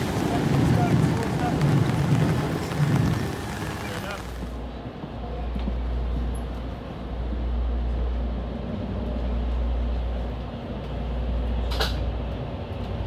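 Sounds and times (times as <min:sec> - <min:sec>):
train clack: 0:00.0 - 0:06.7
train rumbling: 0:00.0 - 0:13.0.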